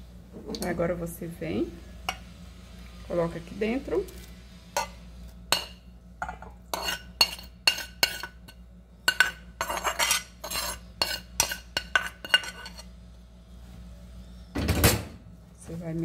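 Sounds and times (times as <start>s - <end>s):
spoon scraping frying pan: 4.1s - 12.9s.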